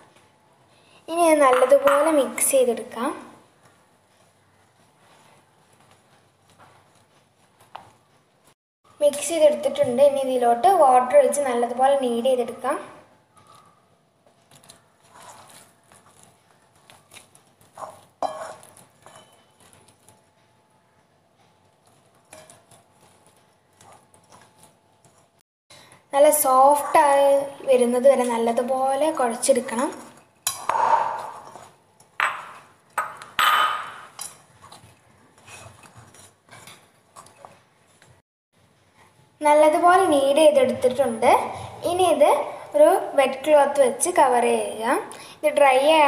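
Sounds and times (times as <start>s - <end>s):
hand kneading dough in bowl: 3.6s - 8.6s, 14.2s - 20.4s, 21.5s - 25.4s.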